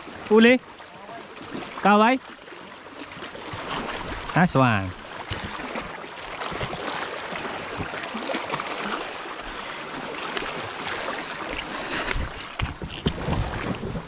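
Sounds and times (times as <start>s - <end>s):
sea water rushing: 0.0s - 14.0s
small water splashes: 0.0s - 14.0s.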